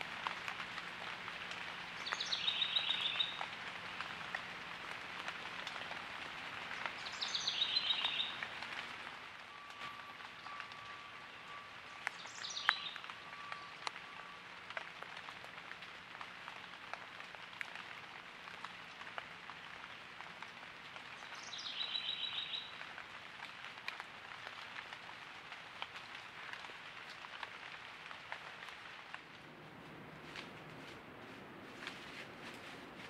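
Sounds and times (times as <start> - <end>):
bird calling: 7.0 - 8.4
light ticks: 9.6 - 16.3.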